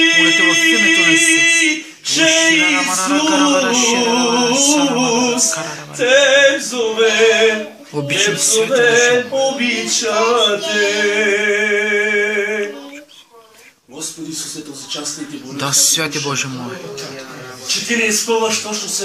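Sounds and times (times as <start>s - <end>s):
man singing unaccompanied: 0.0s - 12.6s.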